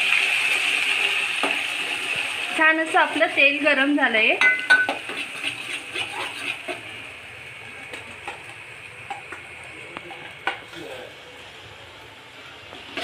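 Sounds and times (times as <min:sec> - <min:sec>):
paste sizzling in hot oil: 0:00.0 - 0:11.6
metal spoon clinking on pan: 0:04.4 - 0:05.1.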